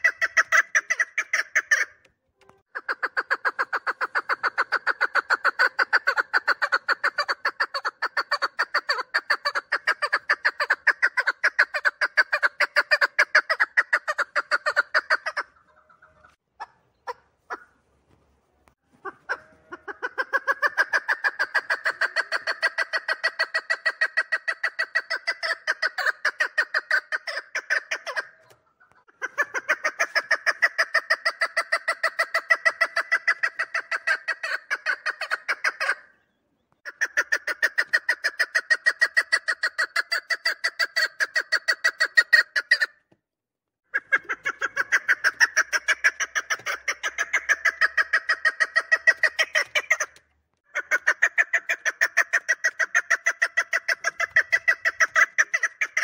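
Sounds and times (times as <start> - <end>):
partridge calling: 0.0 - 2.1, 2.7 - 17.8, 18.9 - 43.0, 43.9 - 56.0.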